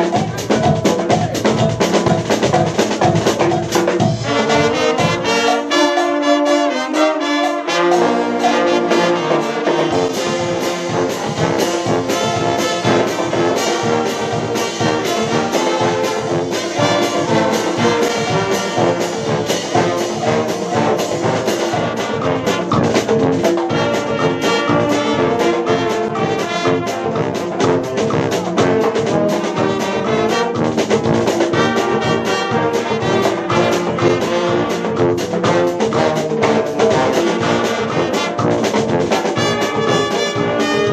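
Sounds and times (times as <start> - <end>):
brass street band playing: 0.0 - 40.9
drums beating: 0.0 - 40.9.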